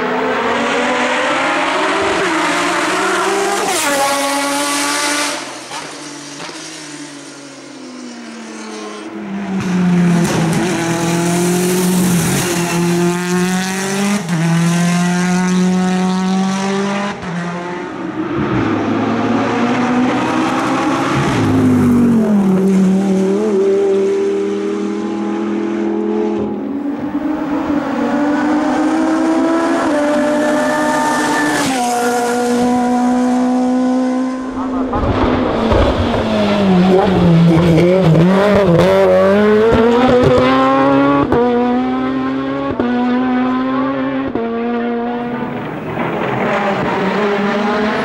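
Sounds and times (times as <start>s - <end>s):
race car engines revving: 0.0s - 48.0s.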